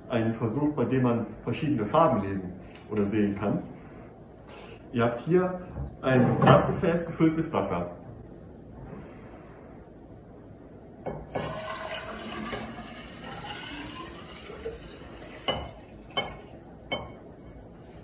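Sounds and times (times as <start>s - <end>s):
water pouring between glasses: 11.3s - 16.7s.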